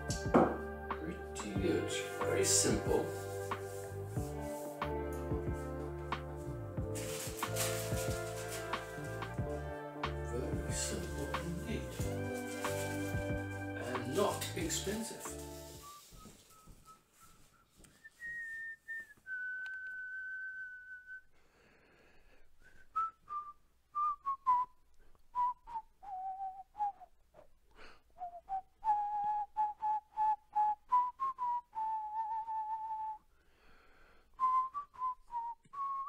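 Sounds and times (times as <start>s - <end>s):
person whistling a tune: 10.3s - 21.4s, 22.6s - 27.5s, 28.2s - 33.3s, 34.4s - 36.0s.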